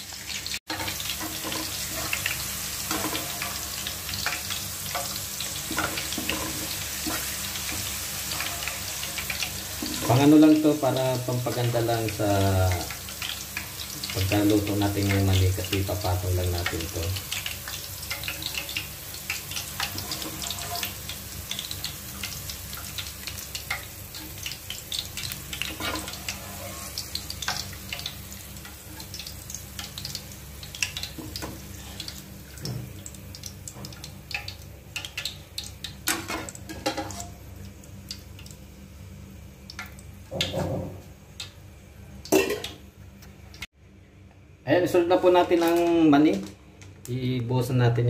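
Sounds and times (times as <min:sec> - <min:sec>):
oil sizzling in a frying pan: 0:00.0 - 0:43.7.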